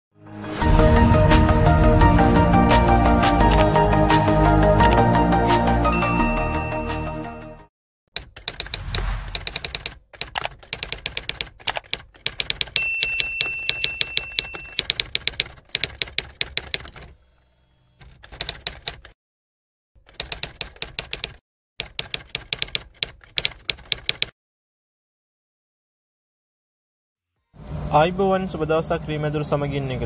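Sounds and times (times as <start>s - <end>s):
typewriter bell ding: 6.0s - 7.0s, 12.6s - 15.1s
typewriter key clacks: 9.4s - 17.1s, 18.0s - 19.1s, 20.0s - 24.3s.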